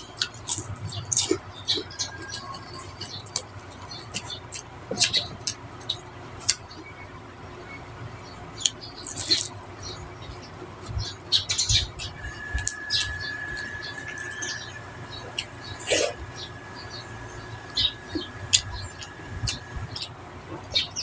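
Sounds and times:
lip smacks and chewing: 0.2s - 6.7s, 17.7s - 20.8s.

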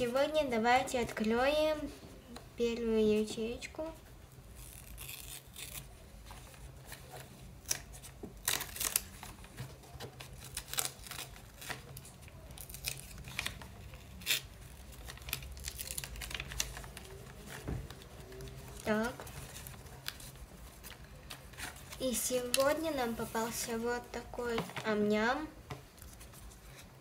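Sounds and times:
sticky tape ripping: 4.6s - 5.9s, 7.6s - 9.2s, 12.6s - 17.0s
paper rustling: 4.6s - 23.8s.

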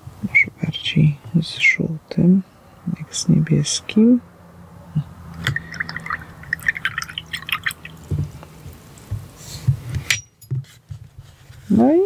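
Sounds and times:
small drips and splashes: 5.3s - 9.1s.

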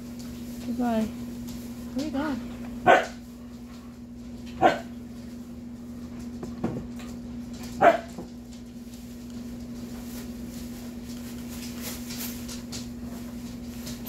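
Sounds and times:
steady low hum: 0.0s - 14.0s
dog barking: 2.8s - 3.2s, 4.6s - 5.0s, 7.8s - 8.2s.

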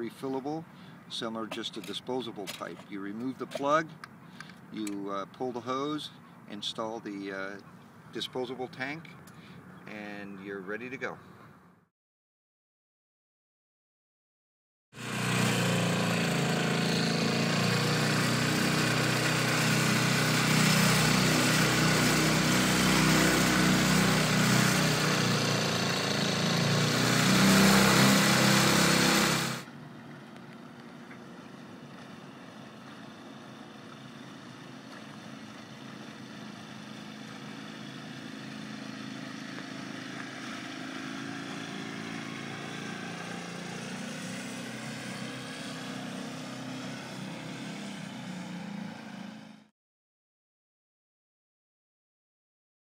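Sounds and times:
outboard motor running: 15.0s - 43.8s.

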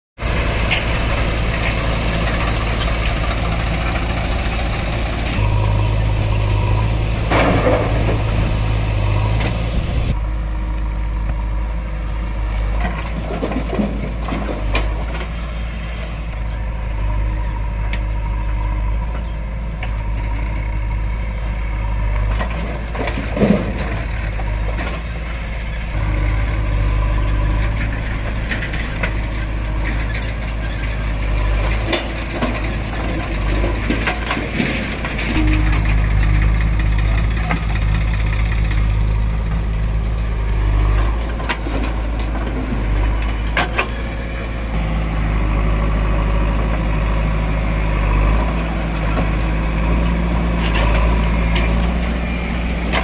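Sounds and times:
diesel engine running: 0.2s - 53.0s
falling soil and clatter: 12.7s - 15.6s, 22.1s - 25.2s.

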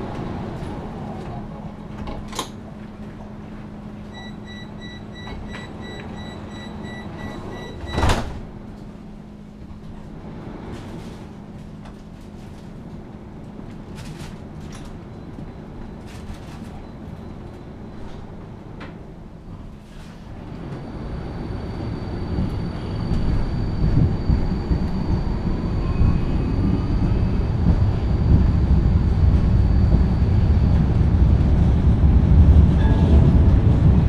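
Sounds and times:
tram electrical hum: 0.0s - 34.0s
rapid high warning beeps: 4.2s - 8.0s
tram doors shutting thud: 4.7s - 8.8s.

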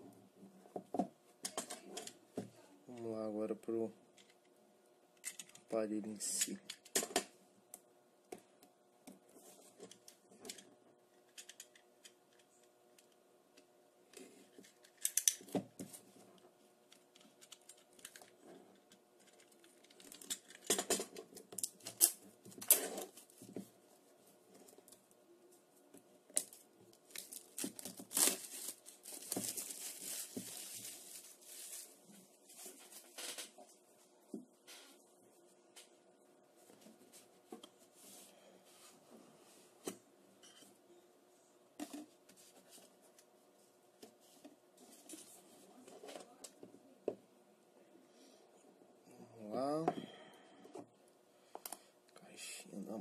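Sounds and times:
plastic wrap crinkling and tearing: 26.4s - 33.2s.

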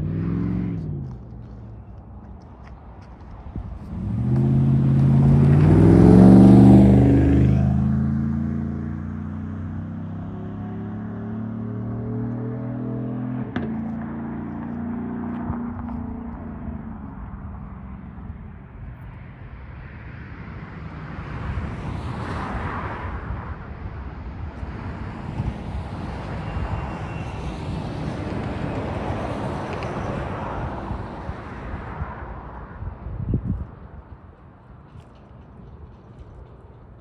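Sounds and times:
vehicle passing by: 0.0s - 1.7s, 3.4s - 23.4s
wind rumble on microphone: 2.1s - 8.2s, 15.2s - 37.0s.

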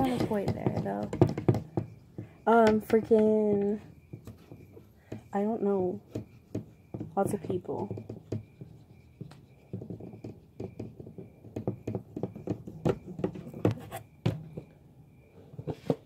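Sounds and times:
marker scratching on whiteboard: 4.2s - 14.1s.

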